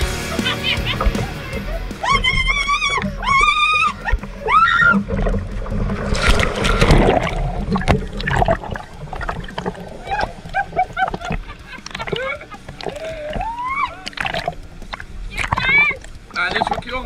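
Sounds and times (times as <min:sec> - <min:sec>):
water splashing: 0:00.0 - 0:17.0
woman shrieking: 0:01.3 - 0:05.0, 0:13.0 - 0:14.2.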